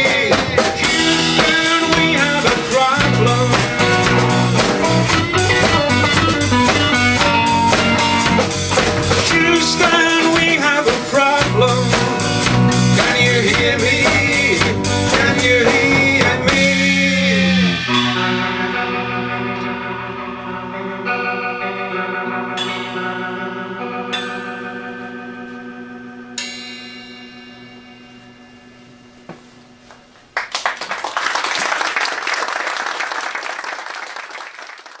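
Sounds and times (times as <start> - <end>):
person singing: 0.0 - 7.4, 9.1 - 20.8
drum kit: 0.0 - 20.7, 22.5 - 25.6
electric guitar: 0.0 - 26.6
electric bass: 0.0 - 29.9
band chord ringing out: 11.6 - 29.9
audience applause: 30.4 - 35.0.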